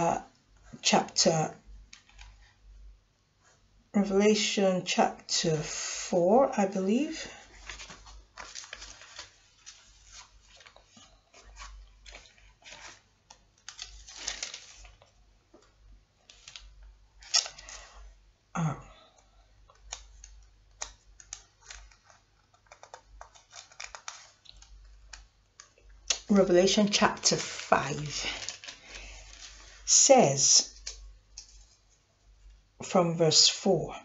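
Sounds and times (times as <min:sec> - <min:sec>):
paper rustling: 0:07.3 - 0:17.9, 0:19.7 - 0:29.9.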